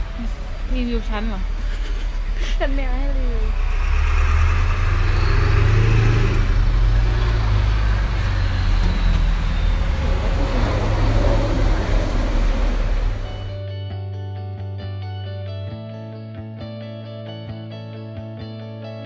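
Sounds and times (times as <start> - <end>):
road traffic rumble: 0.0 - 13.6.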